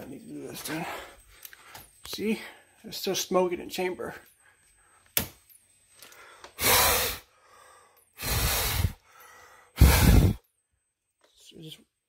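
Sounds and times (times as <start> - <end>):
hard breaths blown into detector: 6.1 - 10.5.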